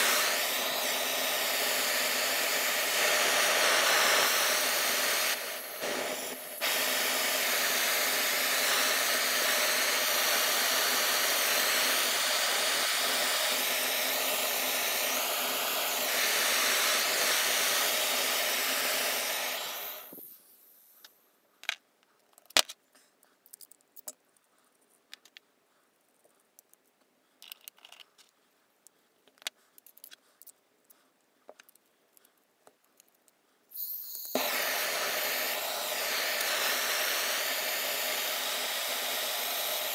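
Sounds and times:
gas torch hissing: 0:00.0 - 0:21.0, 0:33.7 - 0:39.9
small clicks and handling taps: 0:21.0 - 0:22.8, 0:23.4 - 0:25.4, 0:26.6 - 0:30.6, 0:31.5 - 0:33.4.

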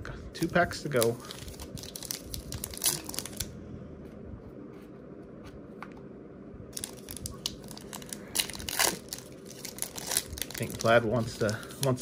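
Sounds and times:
wrapper crinkling: 0:00.8 - 0:03.5, 0:06.8 - 0:12.0.

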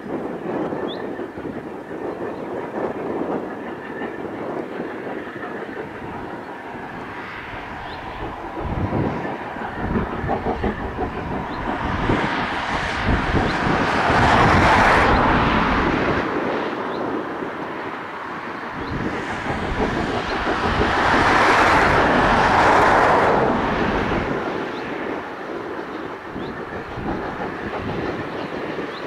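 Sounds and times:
steam train rushing: 0:00.0 - 0:29.0
low rumble: 0:03.7 - 0:24.7.

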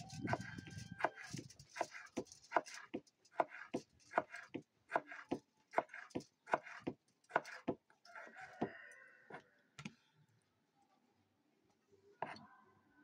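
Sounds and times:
rooster crowing: 0:00.0 - 0:01.4, 0:08.1 - 0:09.6
knife slicing on wooden cutting board: 0:00.2 - 0:07.7.

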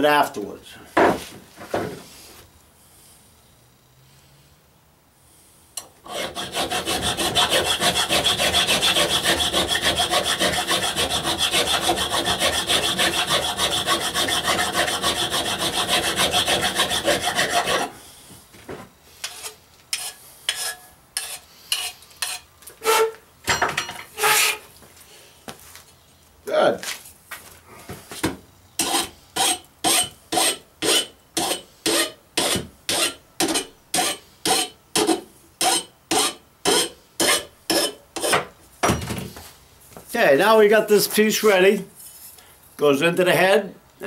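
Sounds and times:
file rasping on metal pipe: 0:06.1 - 0:18.0, 0:19.2 - 0:23.1, 0:28.8 - 0:38.4
tools knocking and clattering: 0:23.4 - 0:24.2, 0:38.4 - 0:39.4.

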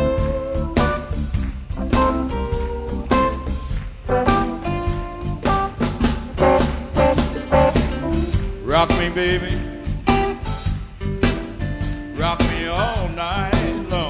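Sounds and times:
upbeat band with drums and guitar: 0:00.0 - 0:14.0
person singing: 0:06.4 - 0:09.9, 0:12.1 - 0:14.0.

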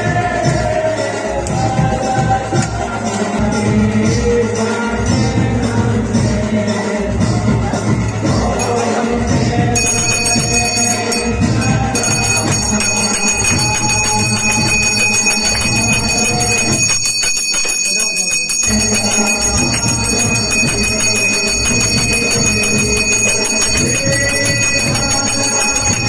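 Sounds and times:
music: 0:00.0 - 0:26.0
bells ringing fast: 0:08.0 - 0:26.0.

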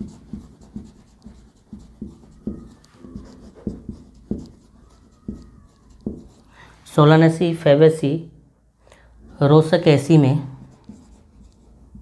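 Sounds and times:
pen strokes on paper: 0:00.0 - 0:06.6.

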